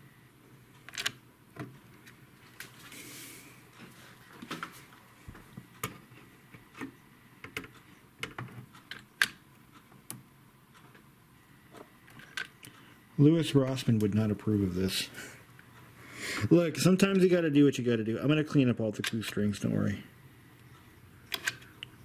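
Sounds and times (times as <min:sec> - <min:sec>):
soft hiss: 0:09.5 - 0:22.0.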